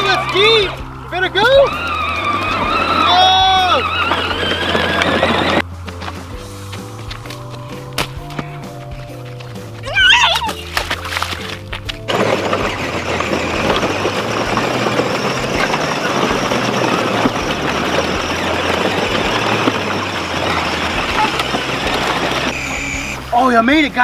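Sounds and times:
toy vehicle wheels splashing water: 10.2s - 23.4s.

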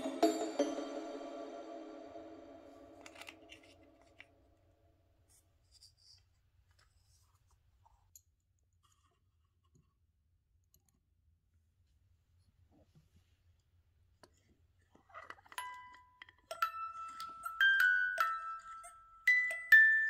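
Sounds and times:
background music: 0.0s - 3.8s.

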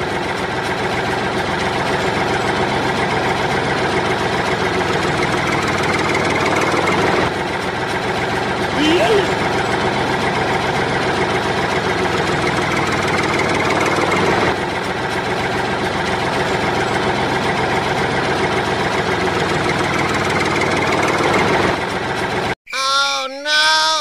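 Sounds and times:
tractor engine idling: 0.0s - 24.0s.

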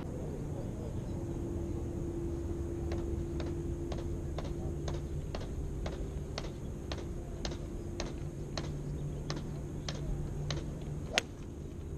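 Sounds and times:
steady low hum: 0.0s - 11.9s.

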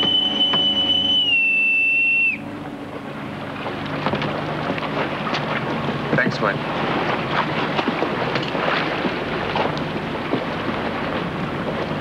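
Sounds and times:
bosun's pipe high note: 0.0s - 3.0s.

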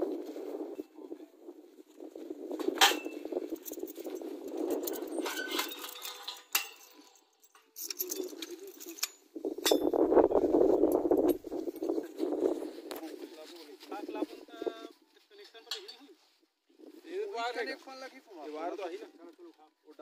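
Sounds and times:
metal clinking and jangling: 2.8s - 10.0s.

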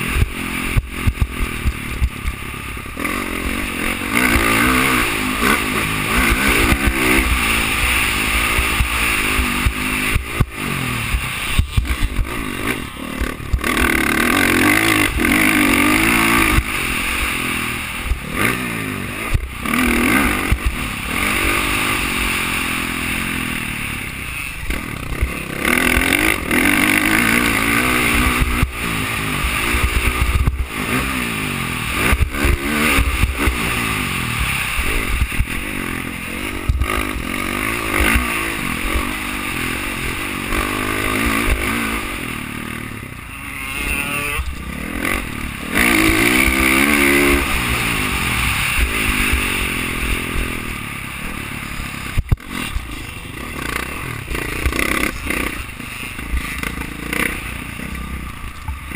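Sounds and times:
dirt bike engine revving: 0.0s - 58.9s.

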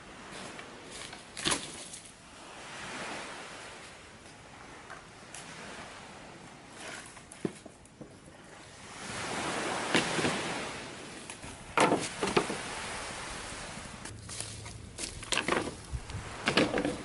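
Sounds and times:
sea surf washing in: 2.1s - 7.1s, 8.3s - 17.0s.

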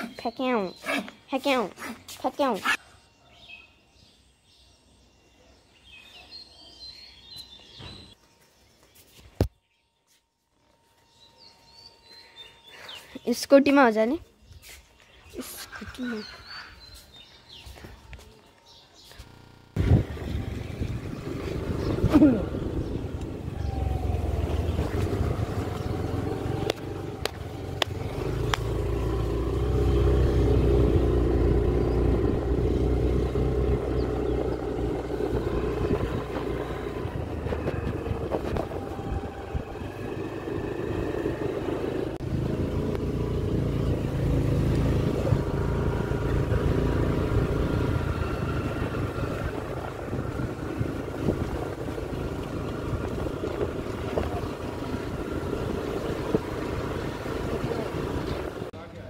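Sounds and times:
motor scooter engine running: 18.6s - 58.8s.

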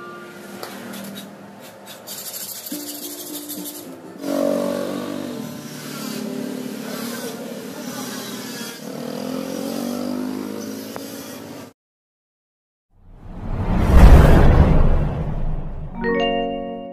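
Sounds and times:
motorcycle engine revving: 4.2s - 11.7s.

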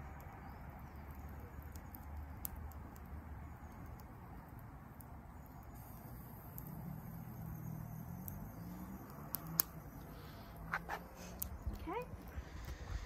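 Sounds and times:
small pops: 9.0s - 12.8s.

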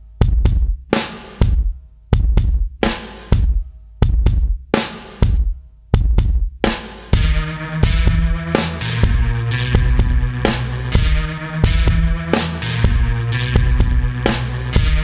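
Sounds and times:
drum-kit beat: 0.0s - 15.0s.

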